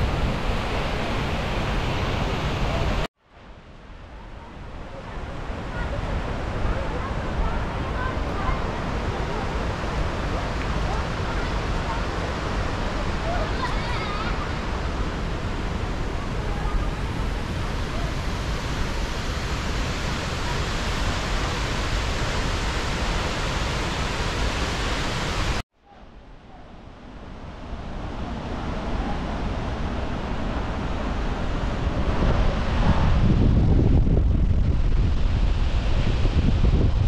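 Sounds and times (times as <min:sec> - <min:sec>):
waterfall rushing water: 0:00.0 - 0:03.1, 0:04.4 - 0:25.6.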